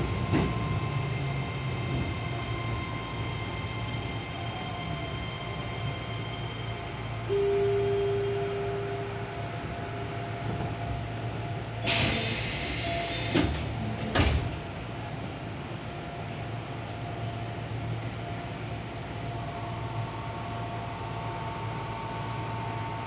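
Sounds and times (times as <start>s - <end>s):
train low hum: 0.0s - 23.0s
held tone: 6.2s - 9.2s
air hiss of doors: 11.8s - 14.4s
doors clunking open: 13.2s - 14.8s.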